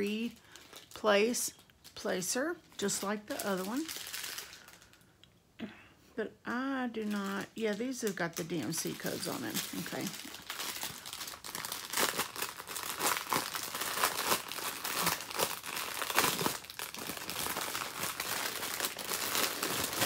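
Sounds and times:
small plastic bags crinkling: 0.0 - 5.4, 7.0 - 20.0.

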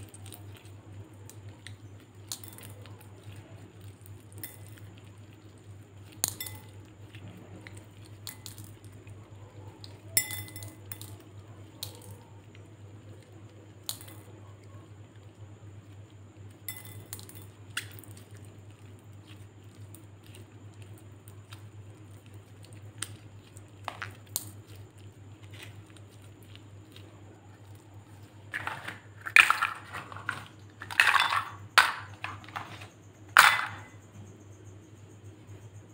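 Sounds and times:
steady low hum: 0.0 - 35.9
plastic cups clattering on glass: 28.5 - 34.0.

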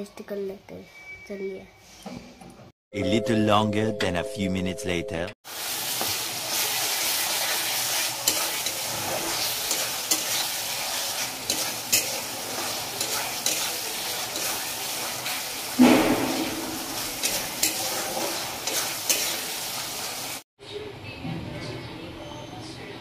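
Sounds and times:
food sizzling in a pan: 5.4 - 20.4
spatula scraping a pan: 6.0 - 15.7, 16.4 - 20.2.

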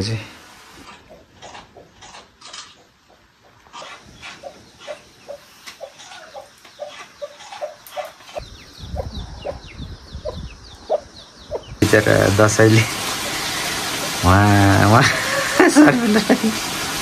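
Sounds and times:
chickens clucking: 0.7 - 16.9
high falling chirps: 3.7 - 16.0.

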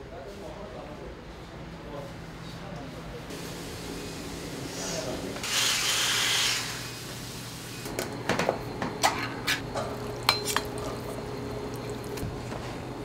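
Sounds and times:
utensils and dishes clinking: 8.3 - 11.2.

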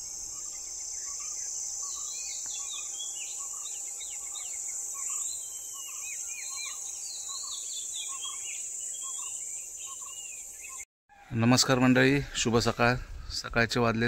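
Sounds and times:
birds whistling: 0.0 - 10.8
insects buzzing: 0.0 - 10.9.

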